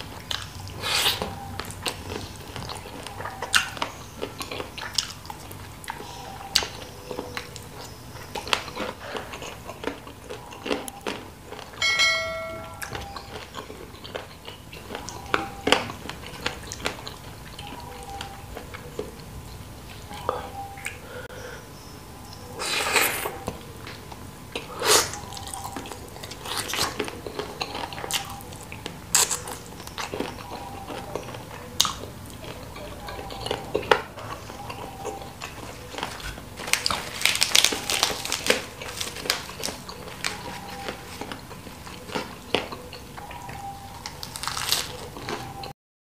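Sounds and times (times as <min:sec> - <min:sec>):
crunchy crackles and mouth smacks: 0:00.0 - 0:11.8, 0:13.0 - 0:19.3, 0:22.3 - 0:45.7
wet chewing and biting: 0:00.0 - 0:11.8, 0:12.8 - 0:19.3, 0:24.1 - 0:45.7
crisp lettuce crunching: 0:25.0 - 0:43.2, 0:43.9 - 0:45.7.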